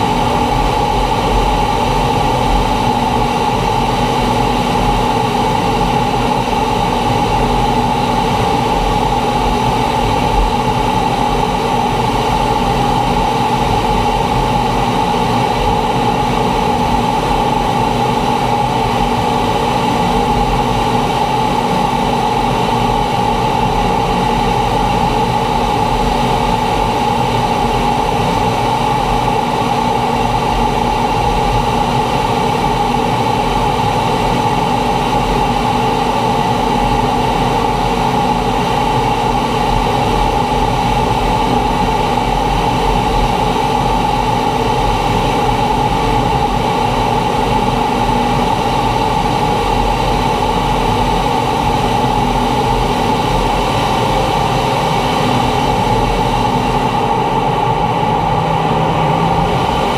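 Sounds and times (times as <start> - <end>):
jet engine drone: 0.0 - 59.9
mid-pitched hum: 0.0 - 59.9
rushing air: 0.0 - 59.9.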